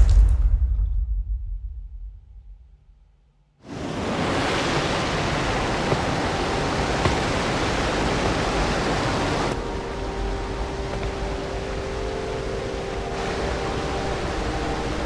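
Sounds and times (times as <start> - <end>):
falling water rushing: 3.6 - 15.0.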